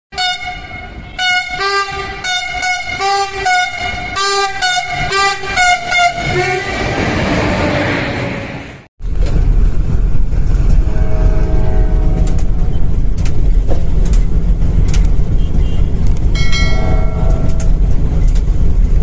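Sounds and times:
train air horn short blasts: 0:00.1 - 0:07.0, 0:10.8 - 0:12.8
passing train rushing: 0:00.2 - 0:19.0.

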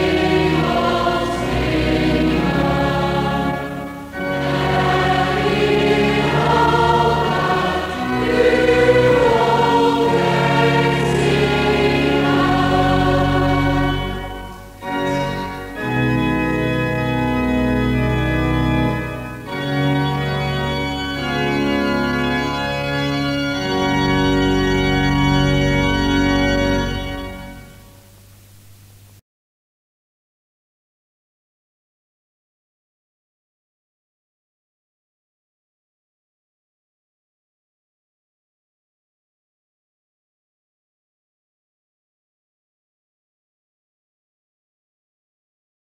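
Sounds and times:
congregation singing a psalm: 0:00.0 - 0:27.8
church organ: 0:00.0 - 0:28.3.

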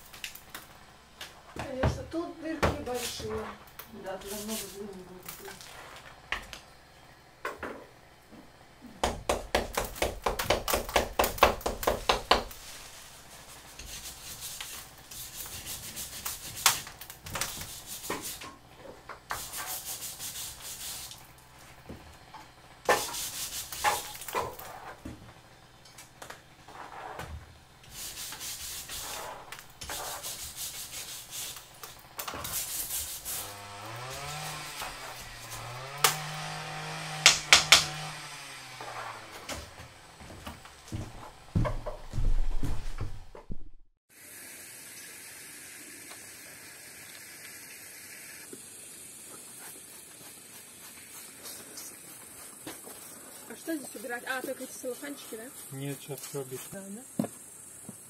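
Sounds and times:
hand scraper scraping brick: 0:02.5 - 0:06.2, 0:09.3 - 0:21.9, 0:22.8 - 0:25.1, 0:26.6 - 0:36.4, 0:37.0 - 0:39.8.

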